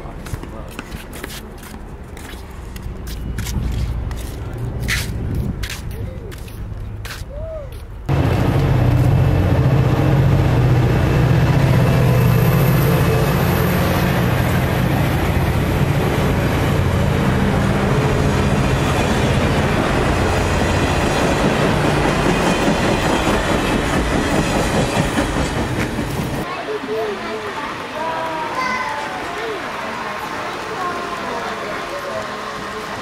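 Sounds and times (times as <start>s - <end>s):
deep diesel drone: 8.1s - 20.7s
train wheels clattering on rails: 12.0s - 26.5s.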